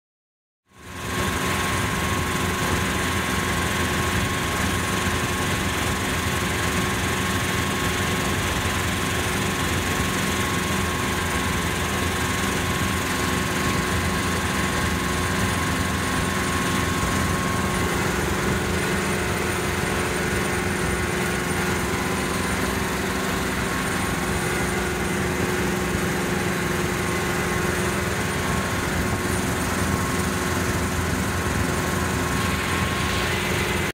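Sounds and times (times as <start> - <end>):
helicopter engine and rotor drone: 0.7 - 33.9
rushing air: 31.9 - 33.9.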